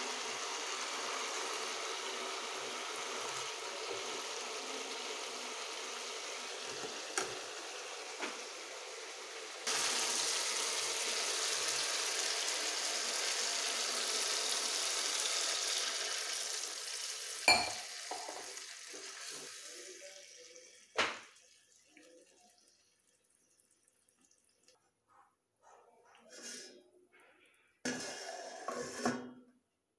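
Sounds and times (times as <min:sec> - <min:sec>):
vegetables sizzling in a wok: 0:00.0 - 0:22.4
water pouring into hot pan: 0:00.0 - 0:24.8
spoon tapping pan: 0:17.5 - 0:18.4.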